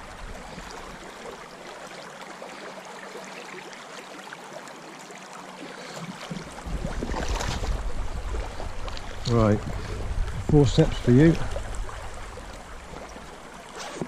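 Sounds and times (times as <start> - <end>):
river water over stones: 0.0 - 14.0
low rumble of handling noise: 6.1 - 14.0.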